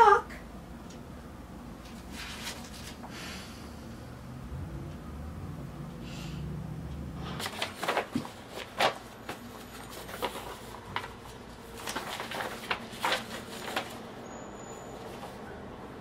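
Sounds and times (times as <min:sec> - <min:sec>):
irregular clicks and rustles: 0:07.2 - 0:14.1.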